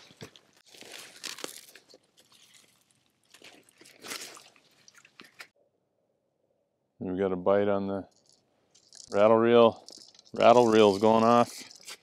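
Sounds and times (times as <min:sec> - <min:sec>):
crunching and rustling handling: 0:00.0 - 0:05.6, 0:08.1 - 0:12.0.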